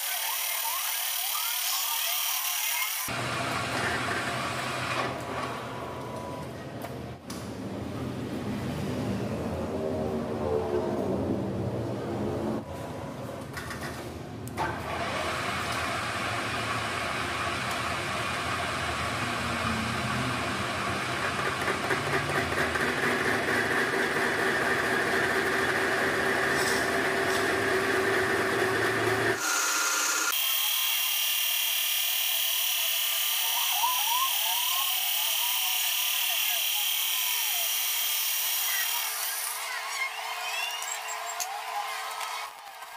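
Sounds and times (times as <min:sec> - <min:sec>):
metal lathe machining: 0:00.0 - 0:03.3, 0:15.0 - 0:40.1.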